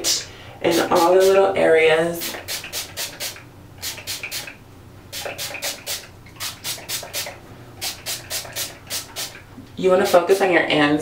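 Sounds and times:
spray bottle hissing: 2.2s - 9.4s.

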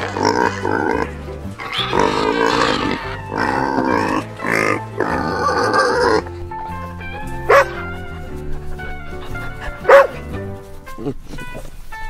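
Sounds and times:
pig squealing: 0.0s - 6.3s
background music with steady beat: 0.0s - 12.0s
dog barks: 7.4s - 7.8s, 9.7s - 10.3s.

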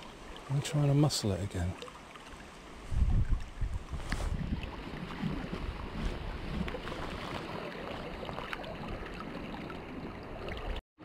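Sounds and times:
river water flowing and lapping: 0.0s - 10.8s
wind buffeting microphone: 2.8s - 7.5s.

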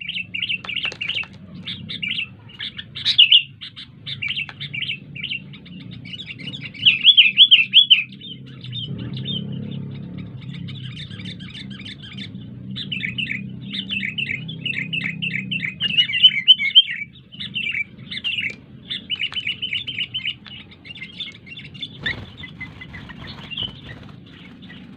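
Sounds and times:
bird chirping song: 0.0s - 24.9s.

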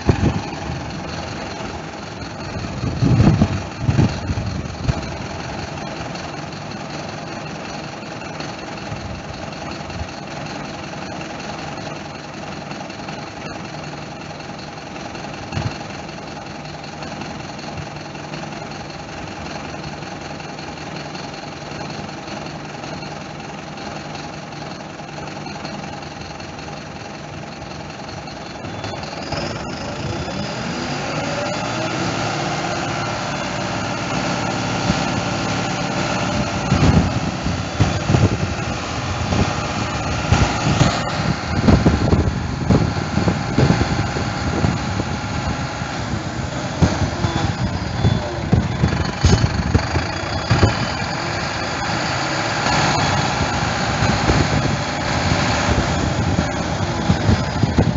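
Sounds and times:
diesel engine at raised revs: 0.0s - 57.9s
knocks and clunks: 46.8s - 51.0s.

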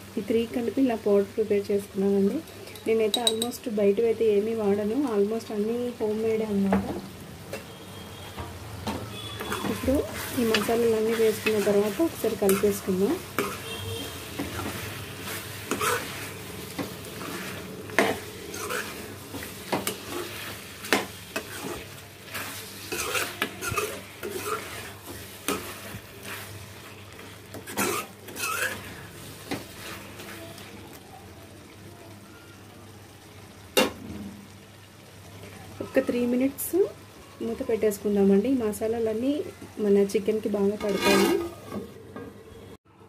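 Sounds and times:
curry sizzling in oil: 0.0s - 42.1s
spatula scraping a pan: 9.1s - 30.8s, 40.6s - 42.0s.

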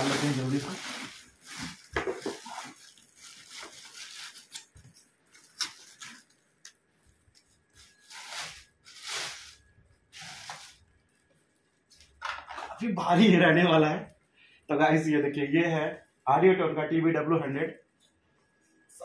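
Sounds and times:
plastic wrapping crinkling: 0.0s - 12.2s.

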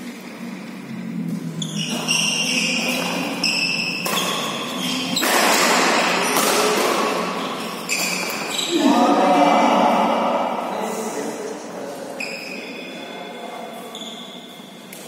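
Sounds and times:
shoes squeaking on court floor: 1.2s - 9.0s, 12.0s - 15.0s
racket hitting shuttlecock: 1.8s - 8.6s.

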